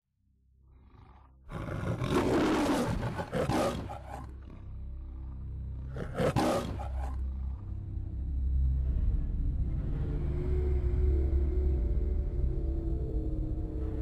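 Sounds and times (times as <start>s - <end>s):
lion roaring: 0.7s - 7.8s
steady low drone: 4.0s - 14.0s.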